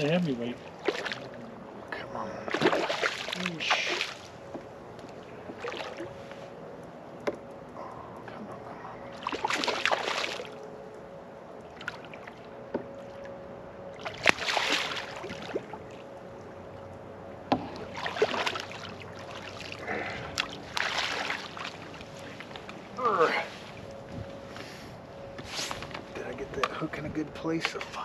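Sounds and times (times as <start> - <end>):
faint steady hum: 0.0 - 28.0
fish splashing in water: 0.7 - 1.3, 2.5 - 4.3, 5.5 - 6.1, 9.2 - 10.6, 14.0 - 15.8, 17.7 - 22.7.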